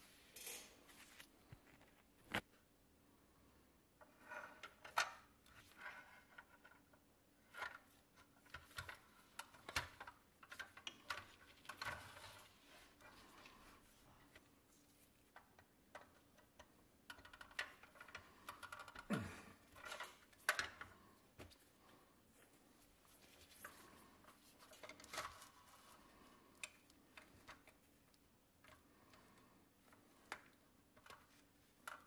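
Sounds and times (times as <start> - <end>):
gloved hands rustling and scraping: 7.8 - 16.6, 19.7 - 32.0
toy parts clicking and tapping: 15.3 - 21.0, 24.6 - 32.0.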